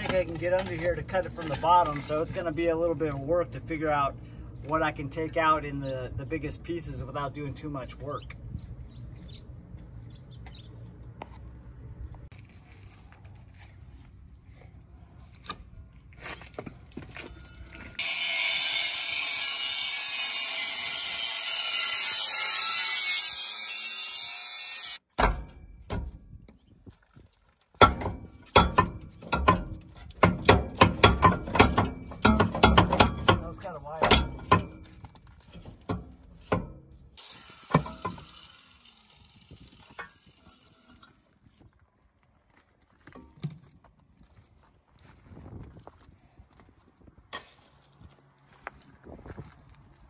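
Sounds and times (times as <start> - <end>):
angle grinder cutting steel: 18.0 - 25.0, 37.2 - 41.2
loud metal clanks and knocks: 25.1 - 26.3, 27.8 - 37.0.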